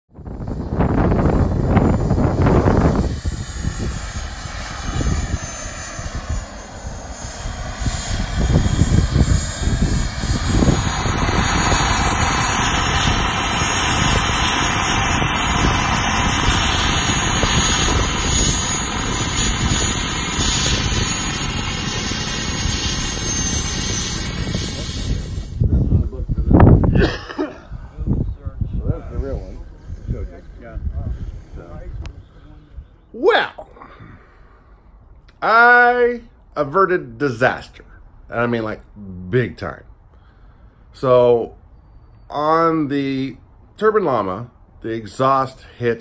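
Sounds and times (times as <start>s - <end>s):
model helicopter rotor noise: 0.1s - 26.7s
wind buffeting microphone: 0.1s - 34.6s
gas turbine high whine: 0.1s - 46.0s.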